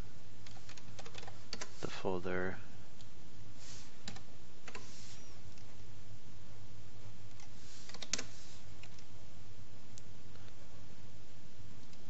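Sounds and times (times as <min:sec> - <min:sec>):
steady low hum: 0:00.0 - 0:12.0
computer keyboard keystrokes: 0:00.4 - 0:01.7.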